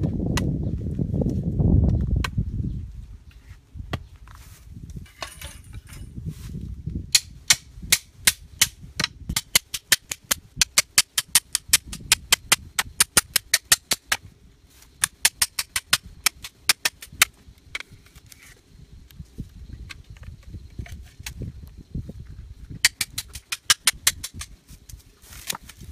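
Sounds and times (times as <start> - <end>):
bamboo cracking: 7.1 - 14.3, 22.8 - 25.9.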